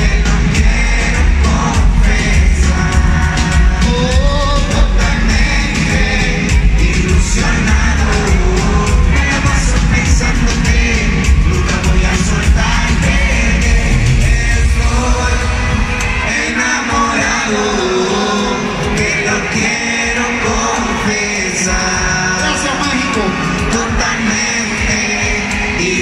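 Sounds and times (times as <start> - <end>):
amplified live band: 0.0 - 26.0
heavy bass beat: 0.0 - 26.0
man singing: 0.0 - 26.0.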